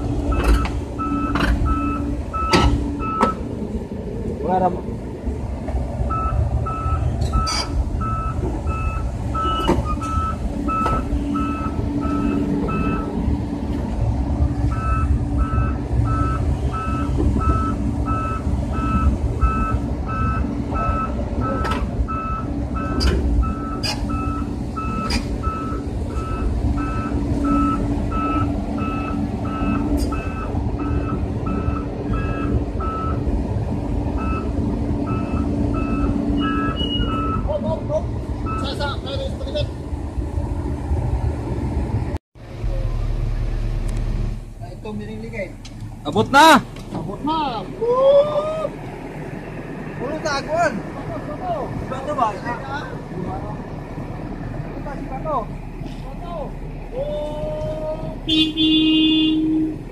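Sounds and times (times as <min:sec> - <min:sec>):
diesel engine running: 0:00.0 - 0:59.9
excavator travel alarm beeping: 0:00.2 - 0:03.5, 0:06.1 - 0:13.2, 0:14.6 - 0:33.3, 0:34.1 - 0:37.5, 0:38.4 - 0:39.0.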